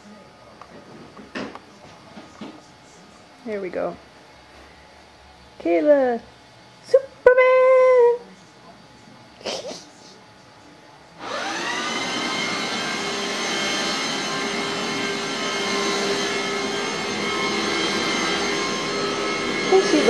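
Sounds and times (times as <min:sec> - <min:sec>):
steam cleaner motor whining: 0:11.2 - 0:20.0.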